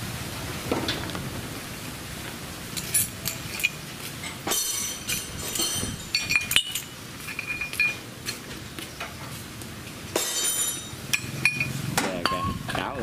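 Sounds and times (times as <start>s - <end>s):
metal gears clinking and rattling: 2.7s - 8.4s, 10.1s - 11.8s.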